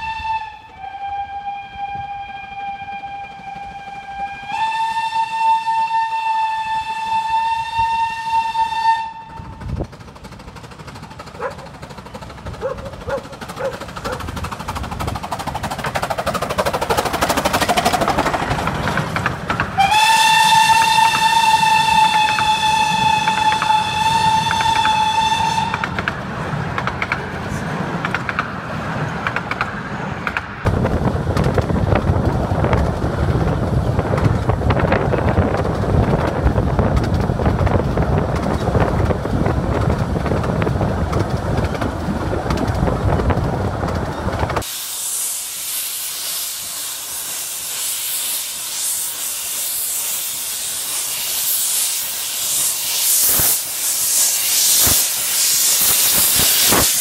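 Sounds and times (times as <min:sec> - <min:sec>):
steam locomotive hissing: 0:00.0 - 0:57.0
train wheels clattering on track: 0:03.1 - 0:57.0.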